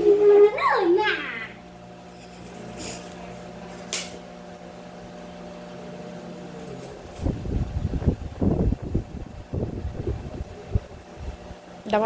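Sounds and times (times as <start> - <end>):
small appliance motor humming: 0.0 - 12.0.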